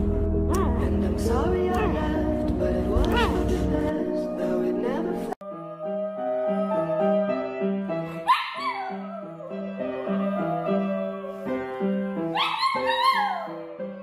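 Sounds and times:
piano playing slow chords: 0:00.0 - 0:14.0
small dog howling: 0:05.4 - 0:07.6, 0:08.2 - 0:11.5, 0:12.3 - 0:13.6.

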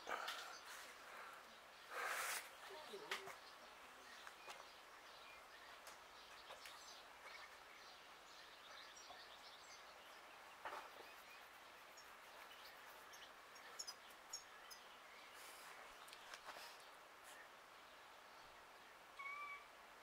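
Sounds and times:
faint bird chirps: 0:00.0 - 0:19.8.

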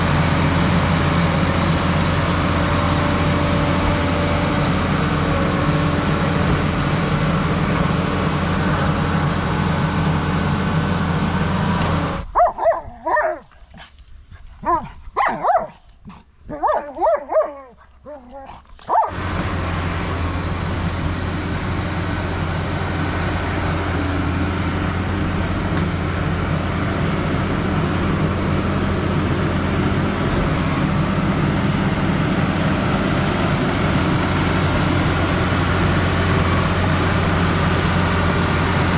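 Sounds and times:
bulldozer diesel engine running: 0:00.0 - 0:13.4, 0:14.0 - 0:38.9
dogs whining and yipping: 0:12.3 - 0:19.2.

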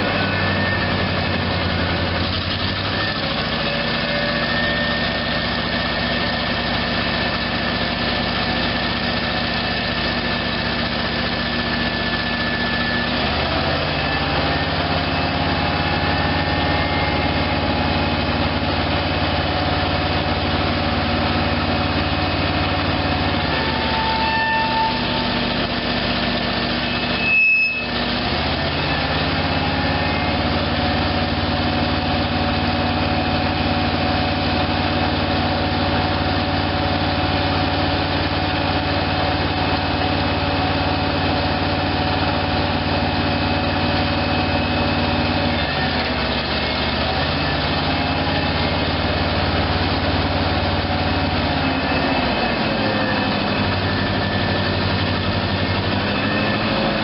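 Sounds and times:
sharp high-pitched squeal: 0:00.0 - 0:06.8, 0:11.5 - 0:19.8, 0:23.0 - 0:25.8, 0:26.4 - 0:30.9
truck engine running: 0:00.0 - 0:57.0.

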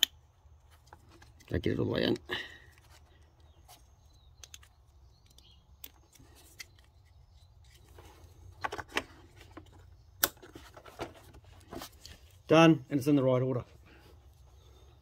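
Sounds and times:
small plastic clicks: 0:04.2 - 0:07.1.

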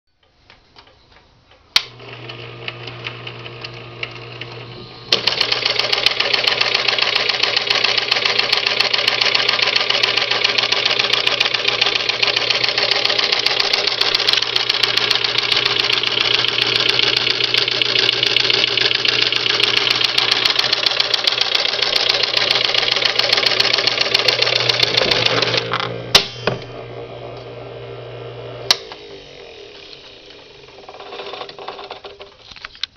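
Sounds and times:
small electric motor humming: 0:01.9 - 0:32.2
sewing mechanism fast rattle: 0:05.2 - 0:25.7.

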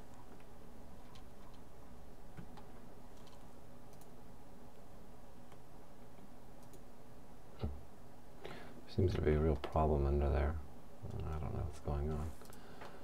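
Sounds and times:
steady low hum: 0:00.0 - 0:13.0
faint mouse clicks: 0:02.3 - 0:04.1, 0:05.5 - 0:06.8, 0:12.1 - 0:13.0.

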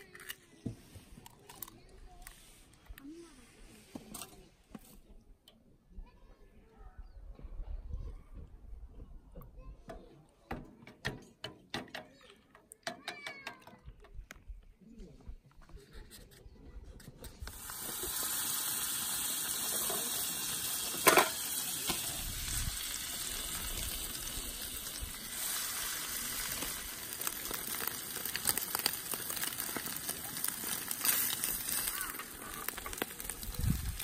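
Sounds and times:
bread frying in a pan: 0:17.5 - 0:34.0.

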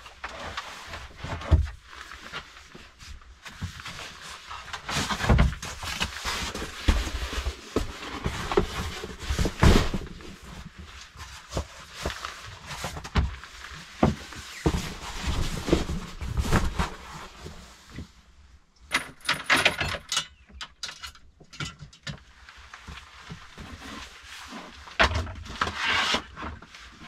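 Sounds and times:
clothing rustling: 0:00.3 - 0:18.3.

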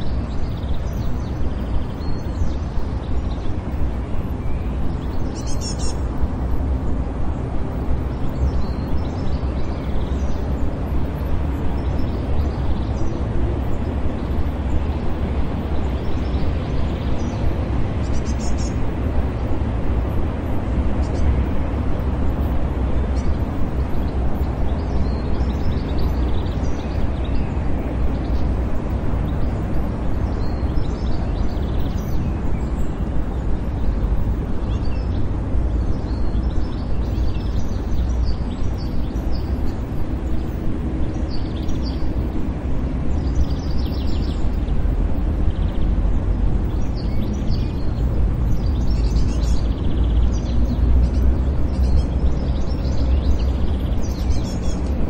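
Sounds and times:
low rumble of distant traffic: 0:00.0 - 0:55.0
small birds chirping: 0:00.0 - 0:55.0.

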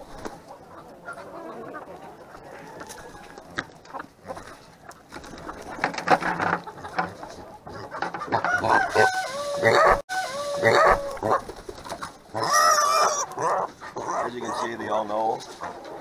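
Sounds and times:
roosters clucking and squawking: 0:00.0 - 0:16.0
rooster crowing: 0:08.3 - 0:11.4.

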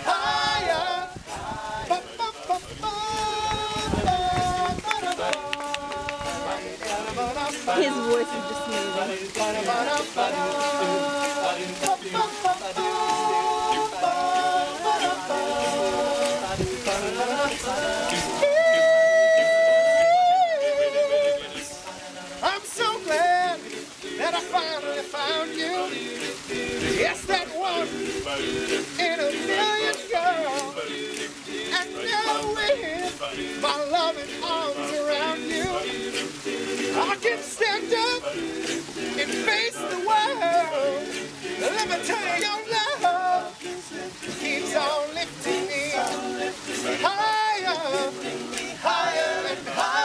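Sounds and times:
men singing close harmony: 0:00.0 - 0:50.0.

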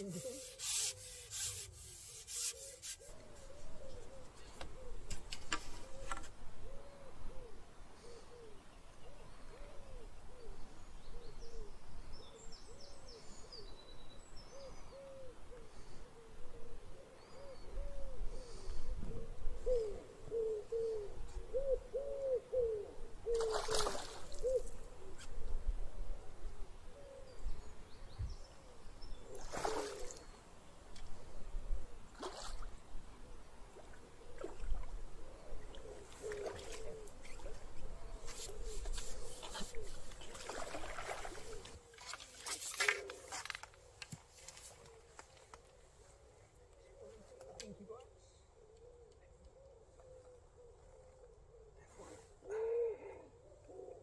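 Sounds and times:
fish splashing at the surface: 0:23.4 - 0:24.4.

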